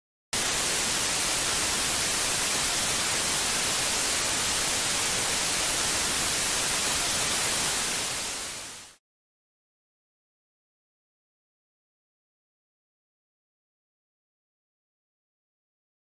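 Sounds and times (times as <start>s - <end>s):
white noise static hiss: 0.4s - 9.0s.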